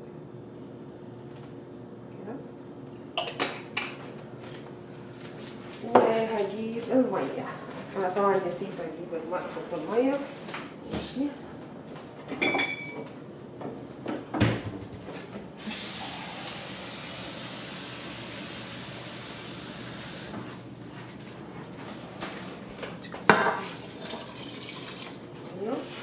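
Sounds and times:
tap water running: 15.6s - 20.5s, 23.0s - 25.3s.

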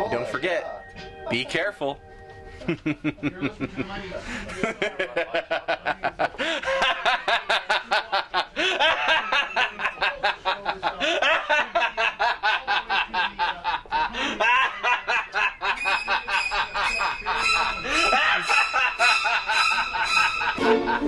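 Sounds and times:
man laughing rapidly: 2.8s - 21.0s.

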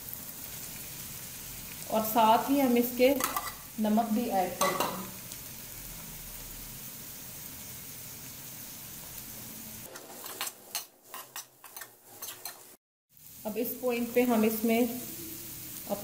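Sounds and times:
food sizzling in oil: 0.0s - 16.0s
metal spatula scraping pan: 3.2s - 3.6s, 9.9s - 12.8s.

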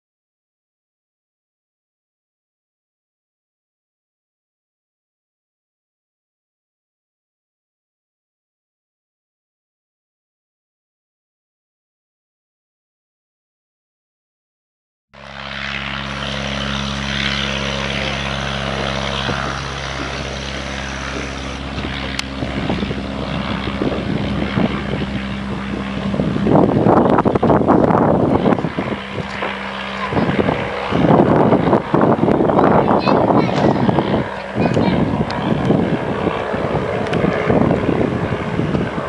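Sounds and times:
propeller plane engine: 15.2s - 39.0s.

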